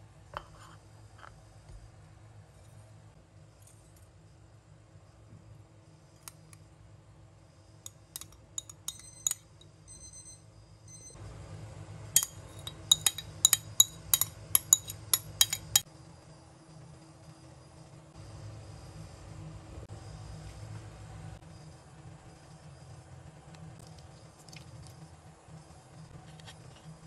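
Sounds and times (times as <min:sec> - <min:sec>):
metal spoon clinking on ceramic dish: 0:07.9 - 0:09.7, 0:12.2 - 0:15.8.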